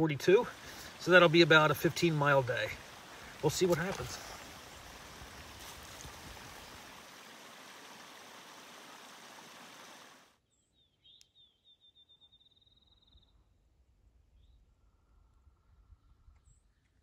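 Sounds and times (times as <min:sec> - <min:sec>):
stream rushing into pool: 0:00.0 - 0:10.4.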